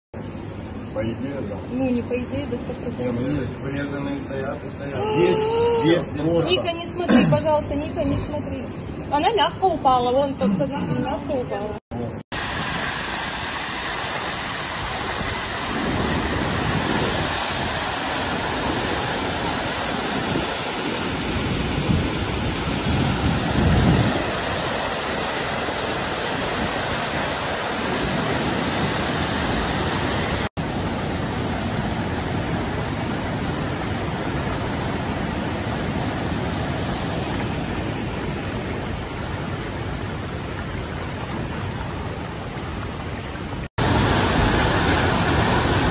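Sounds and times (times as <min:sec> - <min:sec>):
rushing floodwater roar: 0:10.9 - 0:45.9.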